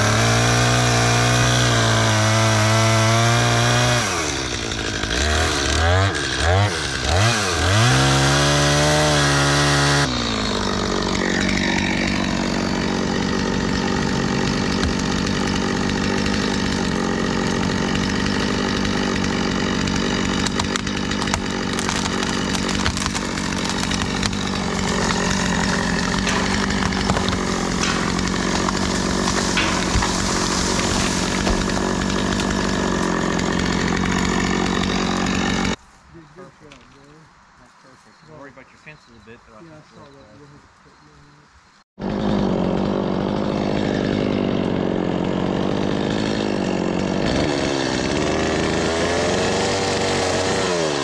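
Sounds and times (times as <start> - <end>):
chainsaw cutting into tree trunk: 0.0 - 35.8, 42.0 - 51.0.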